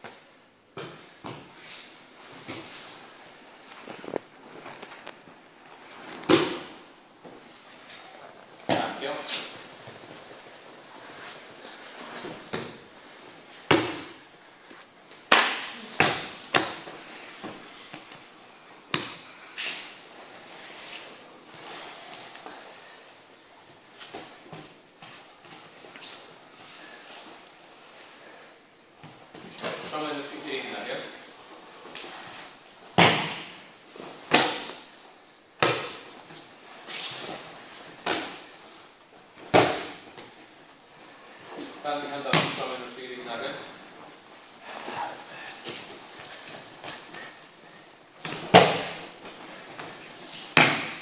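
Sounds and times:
bodies slapping onto padded mat: 0:06.2 - 0:06.8, 0:48.2 - 0:51.0.

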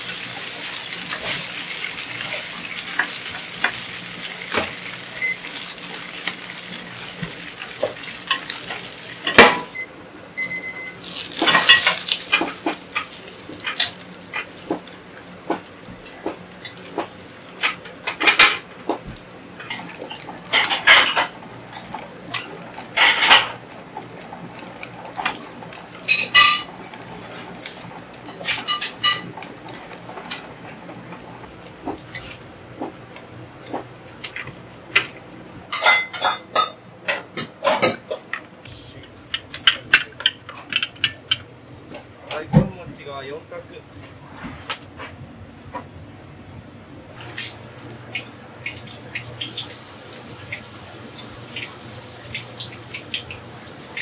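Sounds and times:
metal utensils clinking on pans: 0:00.1 - 0:09.7, 0:11.0 - 0:18.7, 0:19.6 - 0:30.8, 0:35.7 - 0:38.4, 0:39.2 - 0:41.5.

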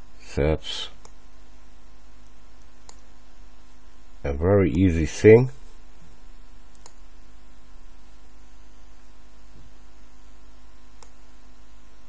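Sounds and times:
electrical mains hum: 0:00.0 - 0:12.0
faint microphone hiss: 0:00.0 - 0:12.0
computer mouse clicks: 0:01.0 - 0:01.2, 0:02.2 - 0:03.1, 0:06.7 - 0:07.0, 0:11.0 - 0:11.2.

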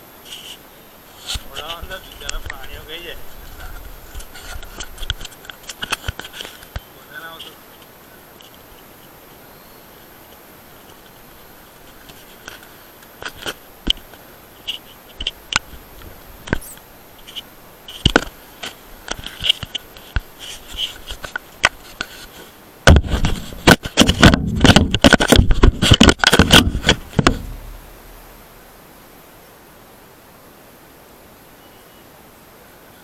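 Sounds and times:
loud dense scraping and crackling: 0:01.1 - 0:07.5, 0:16.0 - 0:28.6
camera handling knocks and scrapes: 0:19.1 - 0:27.8.

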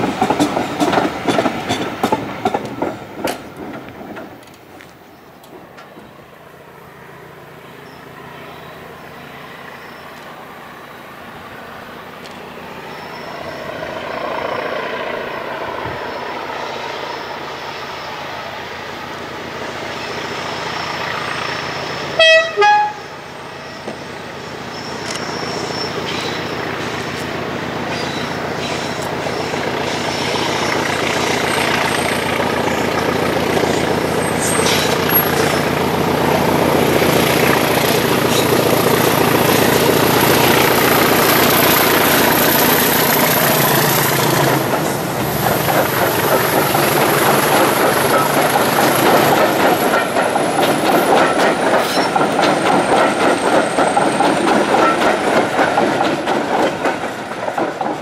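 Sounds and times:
train wheels clickety-clack: 0:00.0 - 0:06.2, 0:24.8 - 0:58.0
diesel locomotive passing: 0:00.0 - 0:58.0
high engine whistle: 0:21.6 - 0:24.1.

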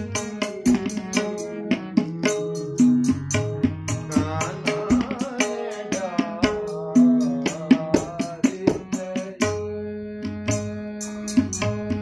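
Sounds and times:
man singing: 0:00.0 - 0:12.0
tabla strokes: 0:00.0 - 0:12.0.

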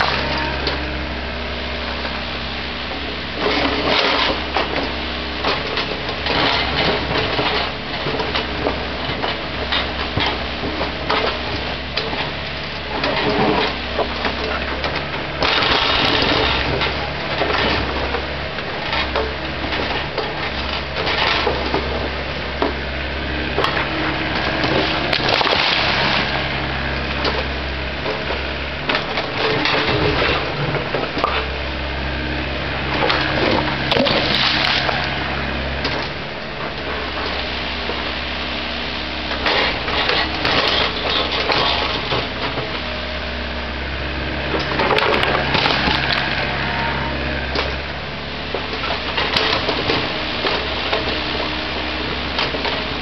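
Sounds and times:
diesel engine running: 0:00.0 - 0:53.0
bucket scraping concrete rubble: 0:23.7 - 0:27.0, 0:32.9 - 0:38.0, 0:44.6 - 0:47.7.

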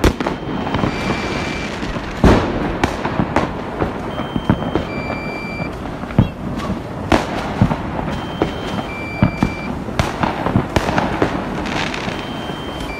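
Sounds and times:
distant fireworks bursts: 0:00.0 - 0:12.9
fireworks bangs and crackles: 0:00.0 - 0:12.9
two-pitch electronic beep: 0:00.2 - 0:01.7, 0:04.1 - 0:06.4, 0:08.1 - 0:09.7, 0:12.1 - 0:12.9.

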